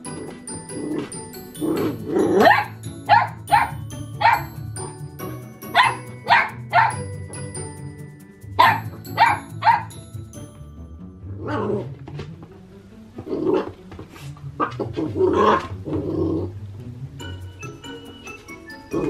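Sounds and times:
puppy growling and barking: 0.0 - 4.6, 5.7 - 7.1, 8.6 - 10.0, 11.3 - 12.0, 13.2 - 13.8, 14.5 - 16.6
background music: 0.0 - 19.0.

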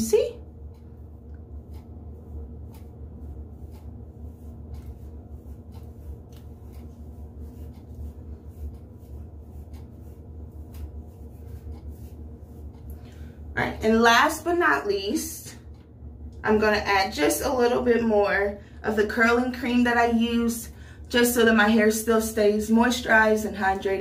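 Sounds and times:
steady low hum: 0.0 - 24.0
hands rustling through hair: 3.6 - 13.2.

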